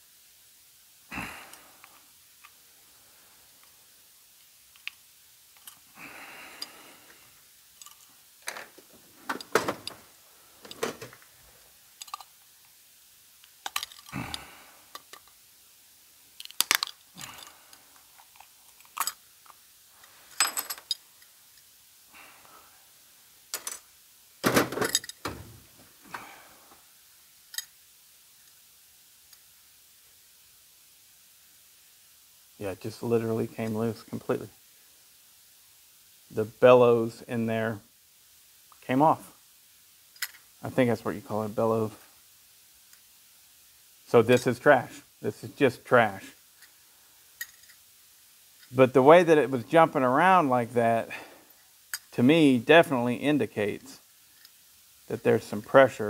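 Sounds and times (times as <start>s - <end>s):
pliers clicking and scraping metal: 12.0s - 12.3s, 16.4s - 17.5s.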